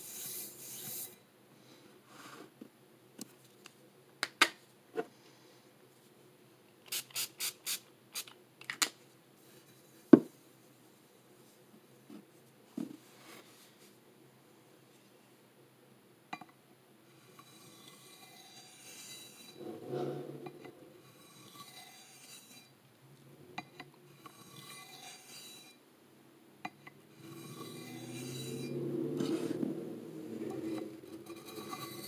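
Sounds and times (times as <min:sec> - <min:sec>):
knife rasping on sharpening plate: 0:17.4 - 0:19.6, 0:21.1 - 0:22.7, 0:24.2 - 0:25.8, 0:27.2 - 0:28.8, 0:30.7 - 0:32.0.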